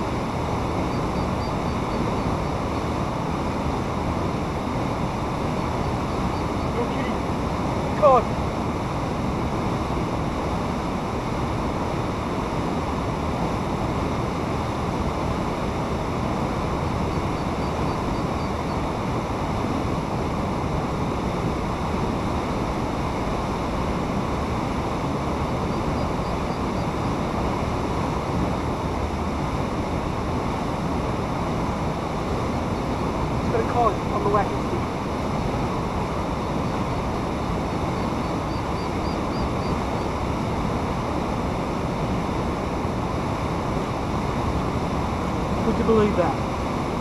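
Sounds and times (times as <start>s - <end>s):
fast-flowing water rushing: 0.0s - 47.0s.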